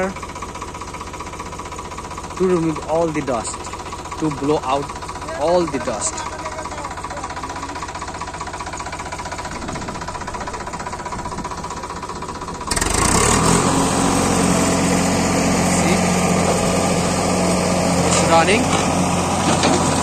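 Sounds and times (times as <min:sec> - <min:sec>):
tractor diesel engine idling: 0:00.0 - 0:20.0.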